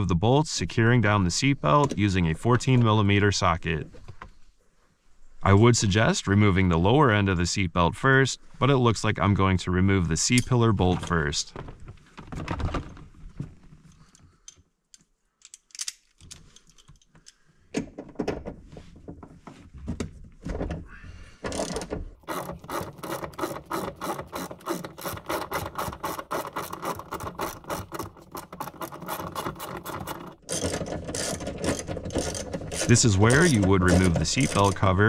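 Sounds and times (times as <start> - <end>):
ratchet wrench clicking: 22.3 - 34.8.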